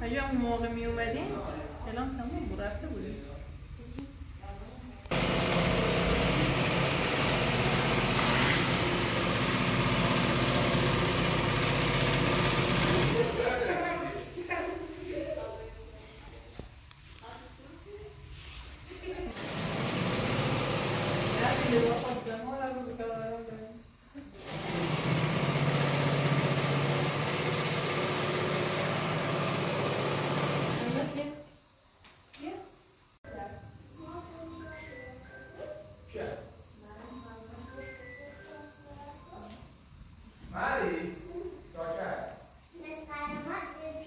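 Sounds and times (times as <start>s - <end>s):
electric sewing machine running: 5.1s - 13.8s, 19.4s - 22.3s, 24.3s - 31.4s.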